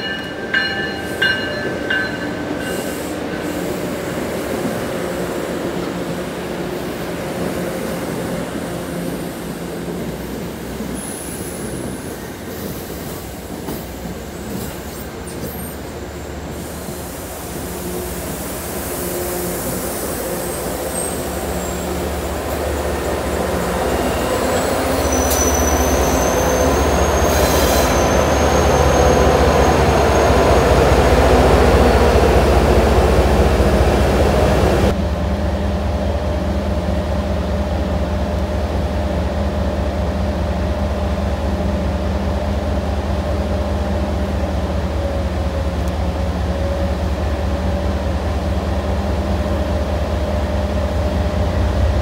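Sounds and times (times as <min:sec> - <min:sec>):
diesel locomotive droning: 0:00.0 - 0:52.0
train rumbling past: 0:00.0 - 0:52.0
wheel squeal: 0:23.3 - 0:30.7.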